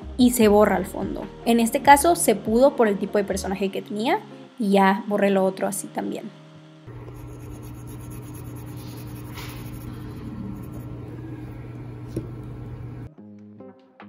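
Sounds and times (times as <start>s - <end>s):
soft background music: 0.0s - 9.2s
electrical hum: 6.3s - 13.1s.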